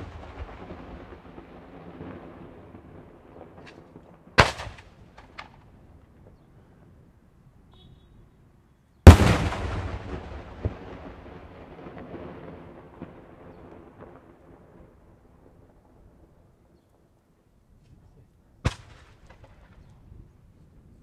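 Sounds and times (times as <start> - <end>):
firework bang echoing: 0.0 - 1.4, 9.1 - 12.4.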